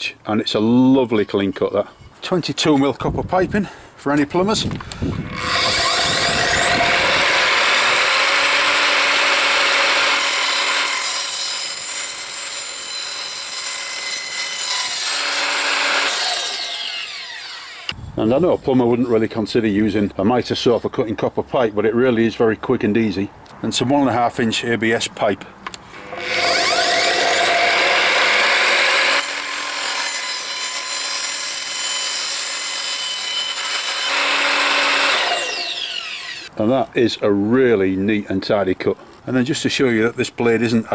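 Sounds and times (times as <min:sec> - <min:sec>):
saw motor whine: 0:05.2 - 0:11.8, 0:14.6 - 0:18.0, 0:26.0 - 0:36.5
saw blade cutting metal pipe: 0:05.2 - 0:18.0, 0:26.0 - 0:36.5.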